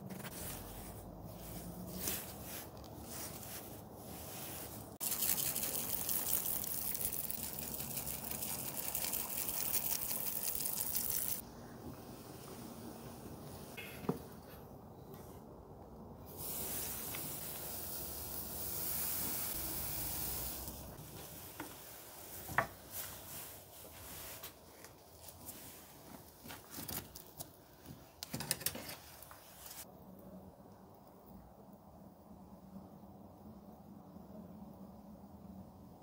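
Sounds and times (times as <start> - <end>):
steady hiss: 0.6 - 14.1, 16.2 - 24.7.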